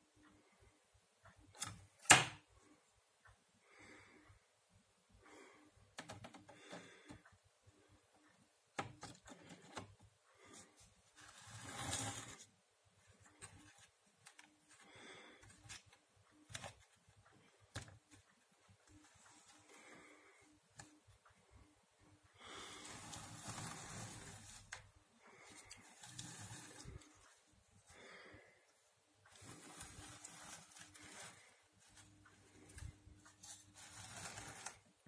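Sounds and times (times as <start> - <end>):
plastic parts clicking and knocking: 1.4 - 2.6, 5.9 - 7.3, 8.7 - 10.6, 13.2 - 19.8
soft rubbing and rustling: 22.6 - 28.0, 29.2 - 35.0.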